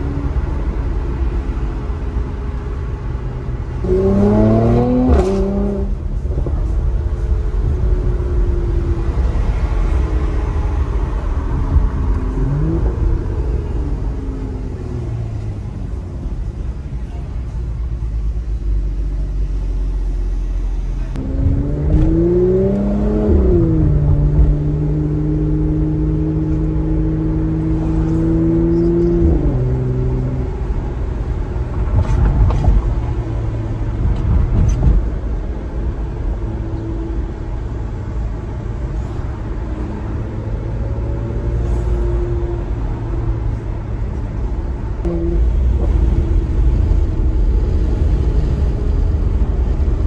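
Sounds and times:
low road rumble: 0.0 - 50.0
car engine revving: 3.6 - 6.5, 21.1 - 32.4, 45.0 - 50.0.

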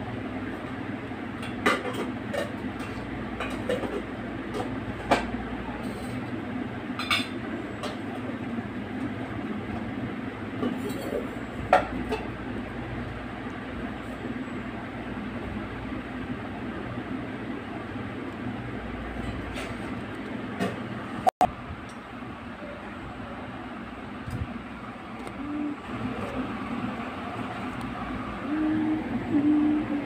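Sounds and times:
steady rumbling background noise: 11.2 - 30.0.

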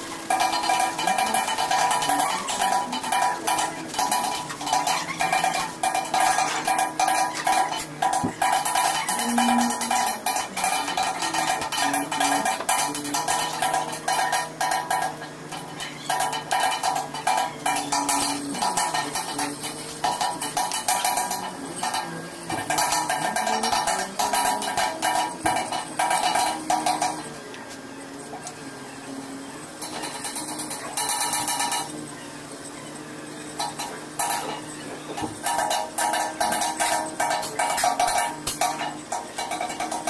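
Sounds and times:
hand tools scraping metal: 0.0 - 40.0.

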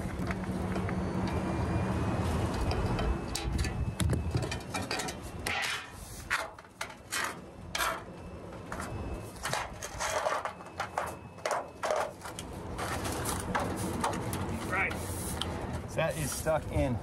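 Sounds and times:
thin sheet metal scraping: 4.3 - 8.1, 9.2 - 16.3.

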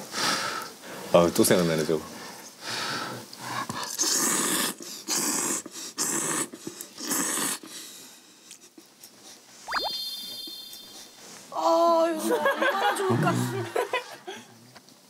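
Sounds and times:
noodles being slurped: 3.8 - 7.7.

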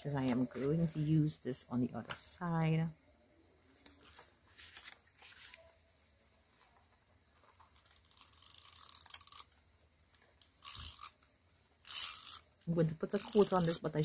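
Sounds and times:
paper rustling: 3.6 - 8.0.

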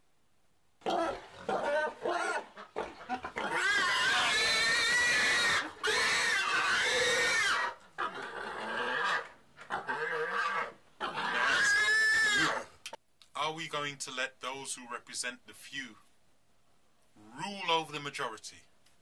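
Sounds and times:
pigs squealing: 0.8 - 12.8.

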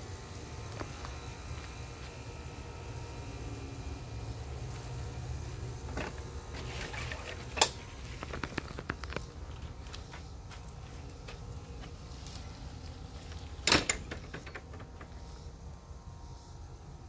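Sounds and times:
footsteps: 5.9 - 13.6.

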